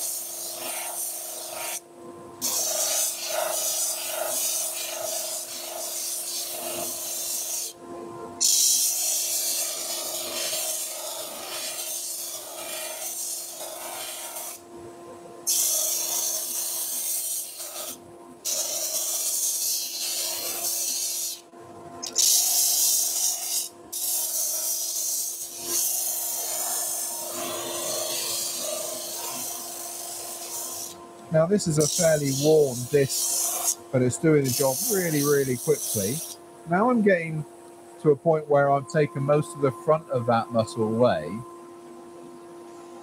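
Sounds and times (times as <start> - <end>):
wood sanding rasping hiss: 2.4 - 7.7, 22.1 - 37.4
lathe low hum: 26.3 - 43.0.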